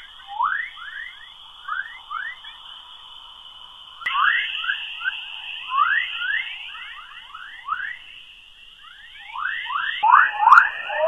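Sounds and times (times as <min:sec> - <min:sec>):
high-pitched hiss: 0:00.0 - 0:11.0
short rising chirps: 0:04.1 - 0:11.0.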